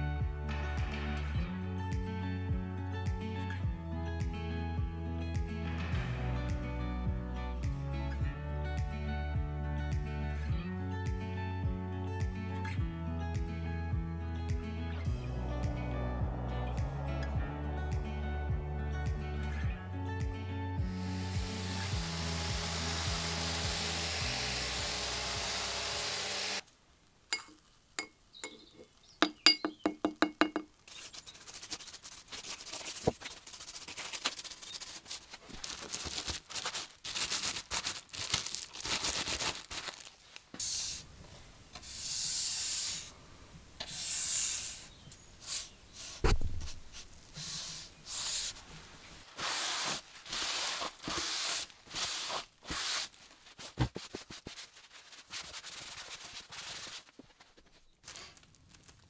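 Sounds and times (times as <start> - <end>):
background music: 0.0 - 26.6
clicks and taps: 27.4 - 30.8
cloth rubbing over wood: 46.9 - 57.9.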